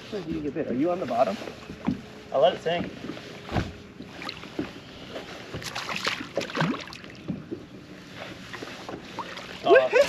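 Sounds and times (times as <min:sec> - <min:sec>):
dull thump on boat deck: 0:02.7 - 0:04.7.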